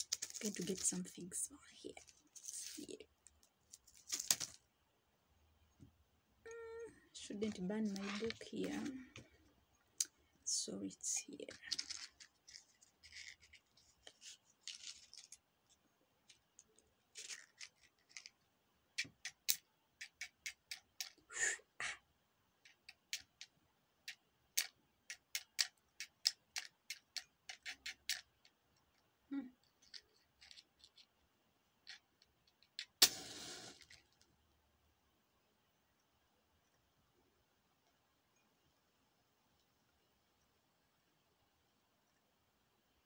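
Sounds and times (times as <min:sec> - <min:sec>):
matchbox and matches rattling: 0:00.0 - 0:04.6, 0:07.4 - 0:09.0, 0:11.2 - 0:15.4, 0:16.3 - 0:18.4, 0:29.6 - 0:31.1
match striking on box: 0:33.0 - 0:34.0.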